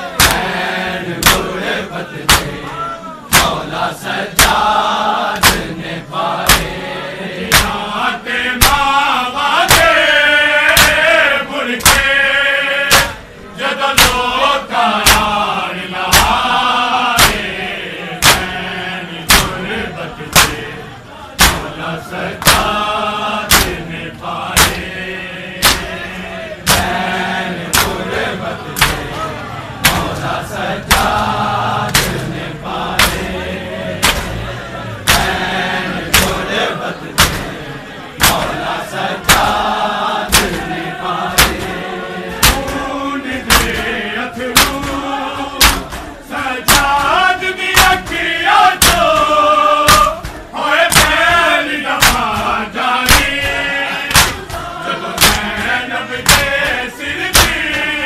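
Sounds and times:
men chanting a lament: 0.0s - 58.0s
hands slapping bare chests: 0.2s - 0.6s, 1.2s - 1.6s, 2.2s - 2.7s, 3.3s - 4.7s, 5.4s - 5.8s, 6.4s - 6.8s, 7.5s - 7.9s, 8.6s - 9.0s, 9.6s - 10.0s, 10.7s - 11.1s, 11.8s - 12.2s, 12.9s - 13.2s, 14.0s - 14.4s, 15.0s - 15.4s, 16.1s - 16.6s, 17.2s - 17.6s, 18.2s - 18.6s, 19.3s - 19.6s, 20.3s - 20.7s, 21.4s - 21.8s, 22.4s - 22.8s, 23.4s - 23.9s, 24.5s - 24.9s, 25.6s - 26.0s, 26.6s - 28.0s, 28.8s - 29.1s, 29.8s - 31.3s, 31.9s - 33.3s, 34.0s - 34.4s, 35.0s - 35.5s, 36.1s - 36.4s, 37.1s - 37.5s, 38.2s - 57.9s.

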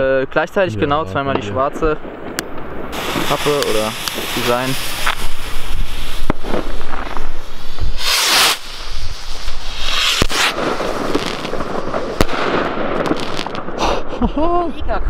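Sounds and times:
fireworks bangs: 0.8s - 14.1s
rockets hissing on lift-off: 2.9s - 14.0s.

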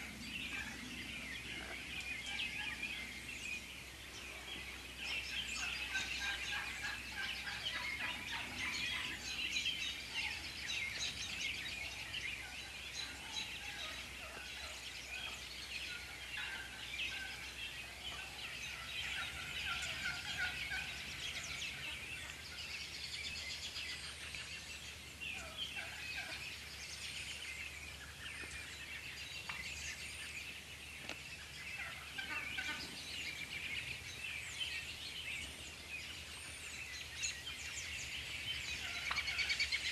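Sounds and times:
turkeys gobbling: 0.0s - 3.2s, 3.8s - 22.9s, 25.3s - 26.8s, 31.0s - 33.8s, 38.6s - 39.9s
turkeys calling: 0.0s - 39.9s.

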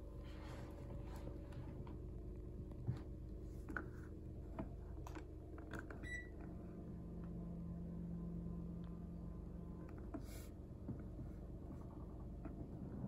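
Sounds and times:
air conditioner humming: 0.0s - 13.0s
air conditioner beep: 6.0s - 6.4s.

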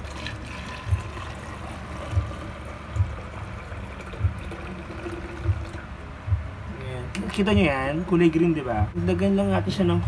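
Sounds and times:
water pouring into plastic bottle: 0.0s - 5.8s.

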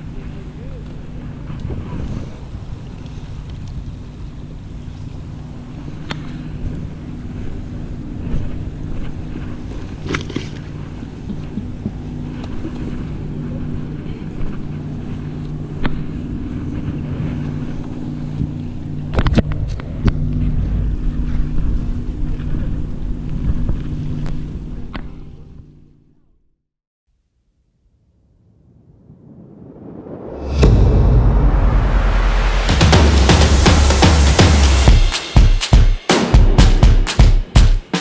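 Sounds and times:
wind on microphone: 0.0s - 25.2s, 28.4s - 34.0s
boat engine drone: 0.0s - 26.0s.

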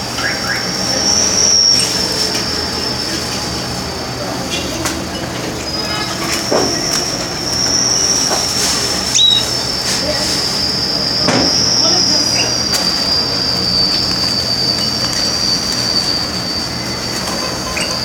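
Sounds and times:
canary trilling: 9.1s - 9.6s.

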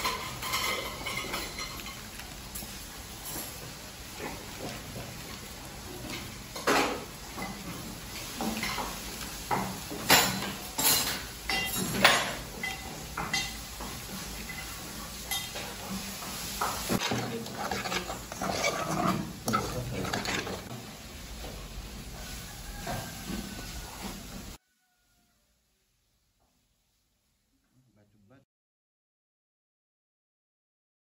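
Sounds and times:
spoon clinking on saucepan and bowl: 0.0s - 2.3s, 9.6s - 13.7s, 14.4s - 15.7s.

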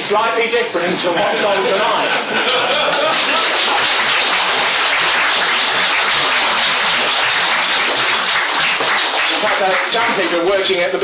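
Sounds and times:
audience applauding: 2.8s - 10.5s.

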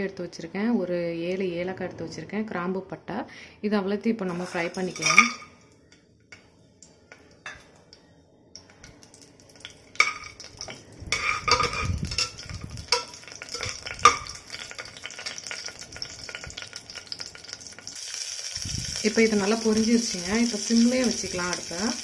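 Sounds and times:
metal skimmer scraping pot: 4.3s - 5.6s, 10.0s - 15.0s
spices sizzling in oil: 4.3s - 22.0s.

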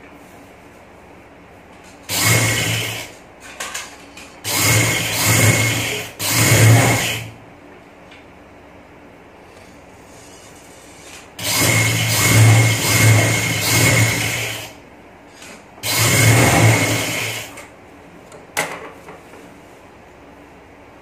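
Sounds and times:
sewing machine stitching: 2.1s - 3.2s, 4.5s - 7.3s, 11.0s - 14.7s, 15.8s - 17.6s.

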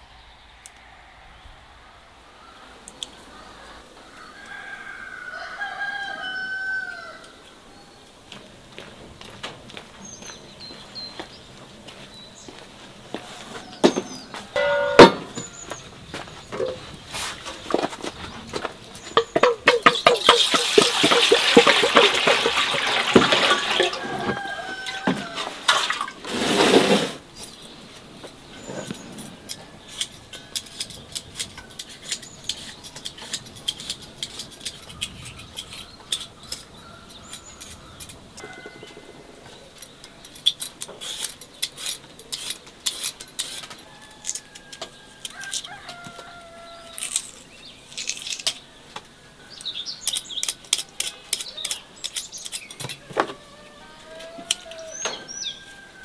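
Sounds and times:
small birds chirping: 6.9s - 14.6s, 15.3s - 20.9s, 27.3s - 43.6s, 44.9s - 53.0s
hens clucking: 13.1s - 26.2s
sharp clicks and scrapes: 28.6s - 38.6s, 39.8s - 46.0s, 46.9s - 48.6s, 49.6s - 53.0s.

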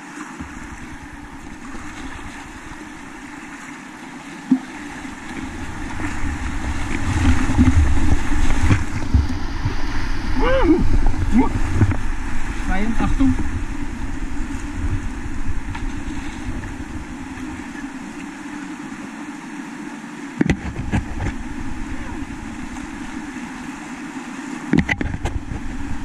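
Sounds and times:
whitewater rapids rushing: 0.0s - 26.0s
low rumble: 4.8s - 18.2s
sharp knocks: 20.4s - 21.4s.

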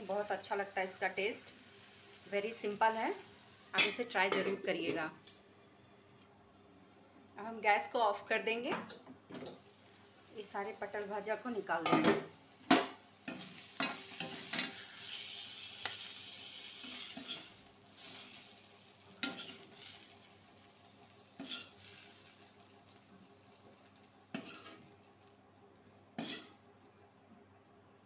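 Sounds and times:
hot oil sizzling: 0.0s - 27.0s
metal spatula scraping a pan: 16.6s - 18.3s, 19.2s - 20.1s, 21.4s - 22.1s, 24.3s - 24.8s, 26.2s - 26.6s.

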